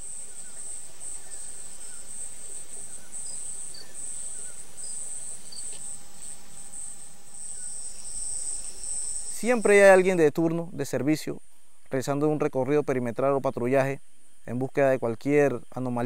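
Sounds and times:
faint bird chirps: 0.0s - 10.1s
insects chirring: 0.0s - 16.0s.

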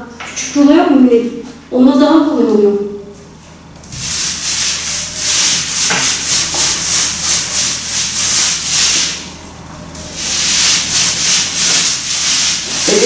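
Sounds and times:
paint roller on wall: 3.2s - 13.0s.

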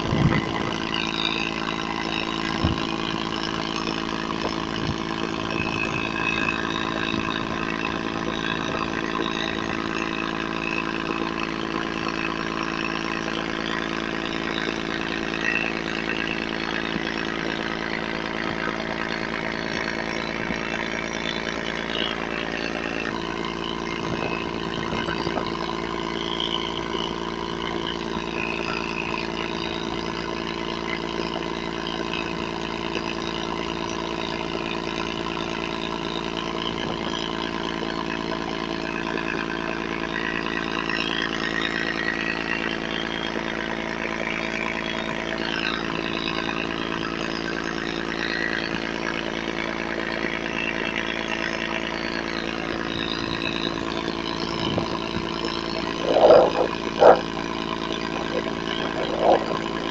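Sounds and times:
motorboat engine running: 0.0s - 59.9s
passing speedboat engine whine: 0.0s - 59.9s
water rushing along hull: 52.9s - 59.9s.

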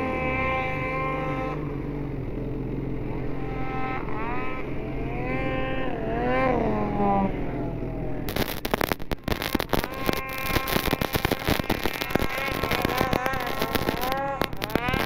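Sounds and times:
snowmobile engines revving: 0.0s - 15.0s
snowmobile passing by: 0.0s - 15.0s
harsh crackling noise: 8.2s - 15.0s.

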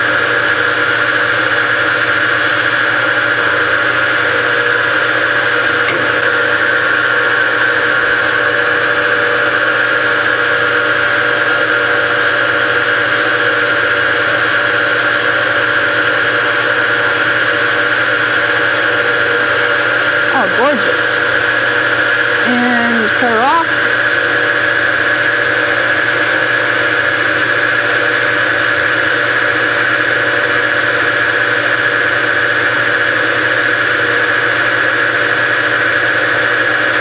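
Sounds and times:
lathe motor whine: 0.0s - 22.4s, 23.1s - 37.0s.

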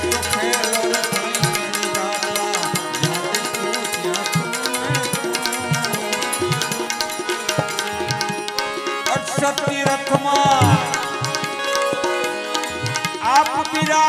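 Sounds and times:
harmonium notes: 0.0s - 14.0s
tabla playing rhythm: 0.0s - 14.0s.

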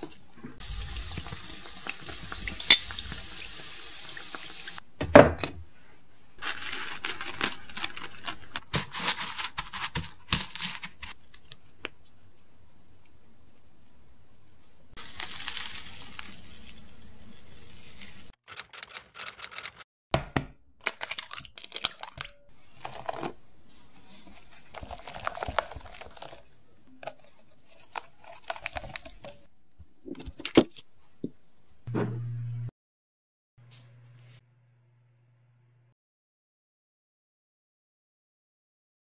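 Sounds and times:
plastic piping bag crinkling: 6.4s - 11.7s, 15.0s - 18.2s, 20.8s - 23.0s, 24.6s - 29.4s
short low hum: 31.9s - 32.7s, 33.6s - 36.0s.

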